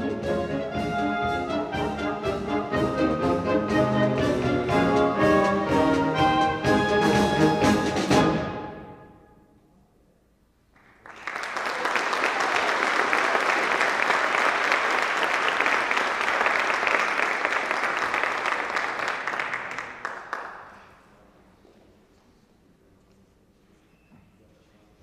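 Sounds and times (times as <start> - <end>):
audience applauding: 10.7 - 21.1.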